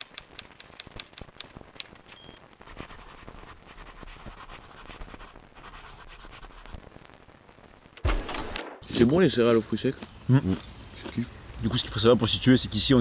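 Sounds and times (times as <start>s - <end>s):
pen scratching on paper: 2.6s - 6.8s.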